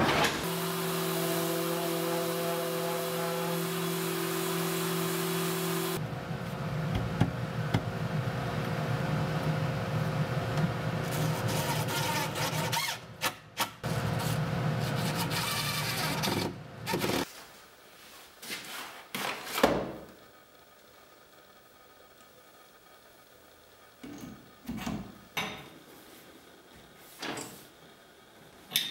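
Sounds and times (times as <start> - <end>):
orbital sander on wood: 0.4 - 6.0.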